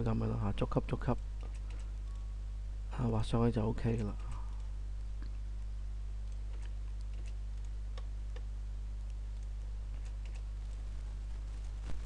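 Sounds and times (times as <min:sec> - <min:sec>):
low electrical hum: 0:00.0 - 0:12.0
mouse and keyboard clicks: 0:01.4 - 0:01.9, 0:06.2 - 0:08.5, 0:09.3 - 0:10.5.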